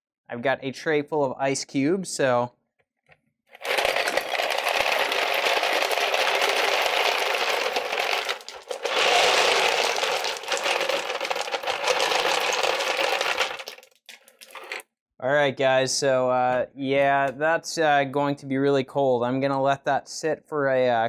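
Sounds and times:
ice cubes clattering into bucket: 0:03.5 - 0:14.8.

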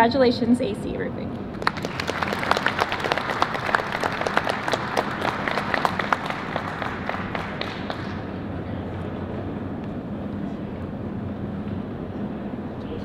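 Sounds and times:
steady background hum: 0:00.0 - 0:13.0
audience applauding: 0:01.5 - 0:08.4.

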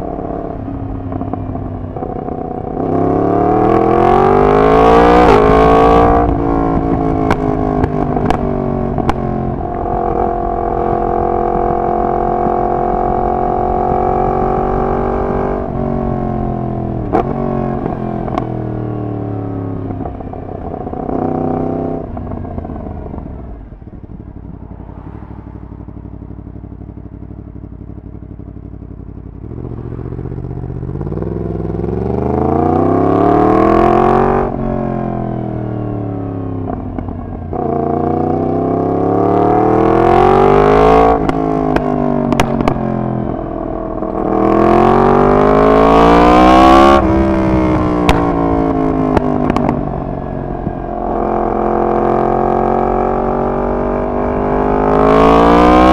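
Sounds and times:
motorcycle engine accelerating: 0:00.0 - 0:55.9
exhaust cracks: 0:41.2 - 0:42.8, 0:47.0 - 0:51.2.

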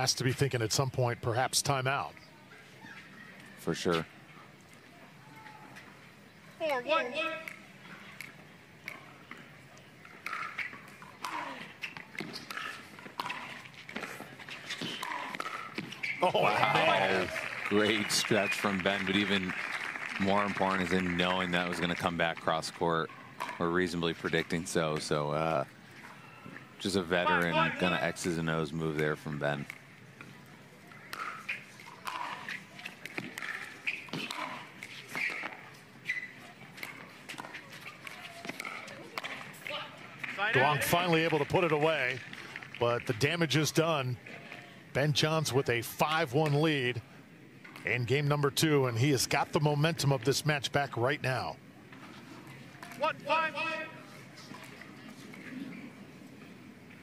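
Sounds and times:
sneakers squeaking on court: 0:31.0 - 0:39.6
paddles hitting plastic ball: 0:31.0 - 0:40.4.

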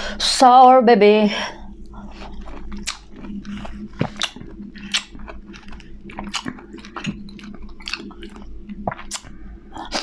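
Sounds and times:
person chewing crunchy food: 0:01.7 - 0:10.0
wet mouth clicks: 0:01.8 - 0:10.0.

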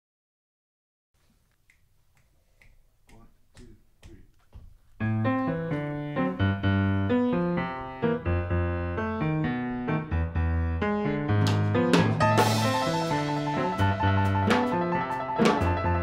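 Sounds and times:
jazz piano chords: 0:04.9 - 0:16.0
bass line: 0:05.0 - 0:16.0.

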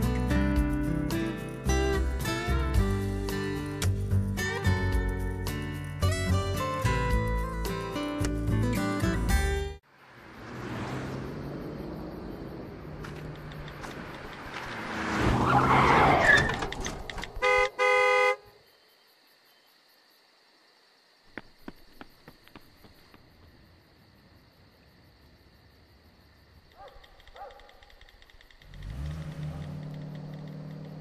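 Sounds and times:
car engine hum: 0:09.3 - 0:18.3, 0:28.2 - 0:31.0
faint clicks: 0:13.0 - 0:14.7, 0:26.7 - 0:31.0
car horn honking: 0:17.4 - 0:18.6.

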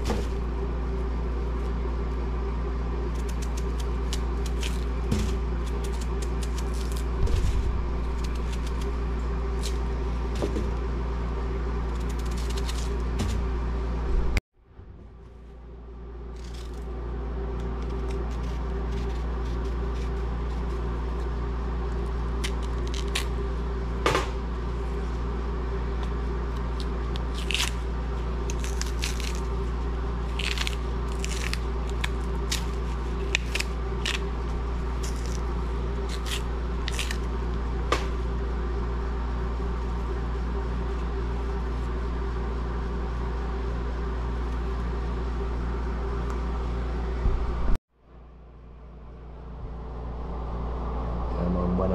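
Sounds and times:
steady electrical hum: 0:00.0 - 0:51.9
knife stripping banana skins: 0:03.0 - 0:10.8, 0:11.8 - 0:13.5, 0:16.4 - 0:23.5, 0:25.9 - 0:38.2.

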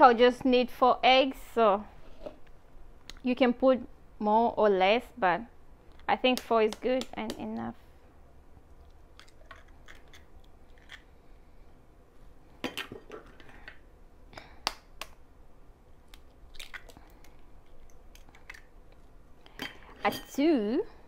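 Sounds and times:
eggshell crunching: 0:08.7 - 0:11.2, 0:16.0 - 0:19.2.

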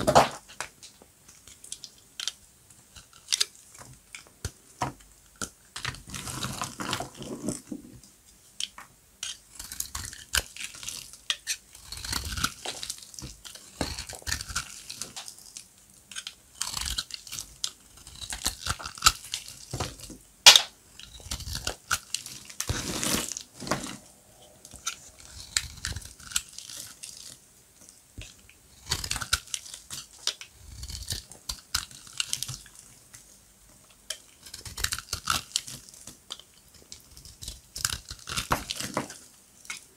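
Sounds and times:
soap crackling and crunching: 0:05.3 - 0:07.8, 0:08.6 - 0:24.0, 0:24.7 - 0:27.4, 0:28.2 - 0:33.3, 0:33.9 - 0:39.9.

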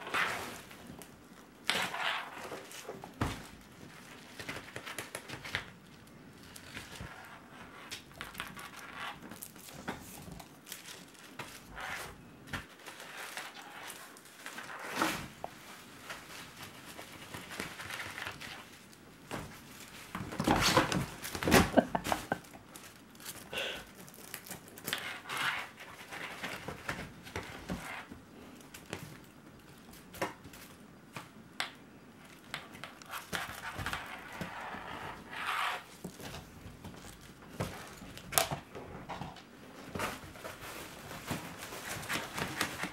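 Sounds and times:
kittens' paws scrabbling: 0:15.9 - 0:25.0.

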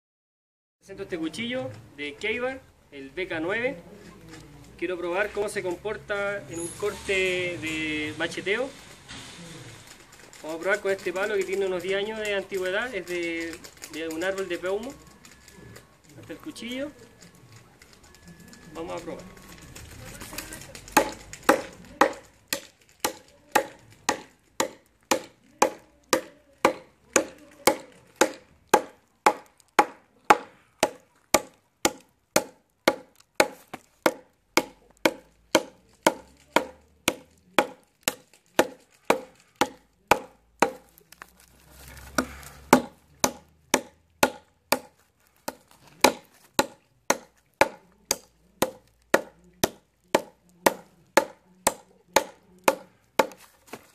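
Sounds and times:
knife chopping into wood: 0:20.9 - 0:41.0, 0:42.1 - 0:53.8.

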